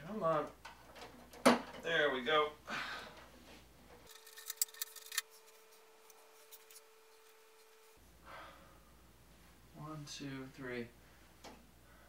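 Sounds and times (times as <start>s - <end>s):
faint steady hum: 0.0s - 12.0s
plastic toy parts clicking: 4.1s - 5.2s.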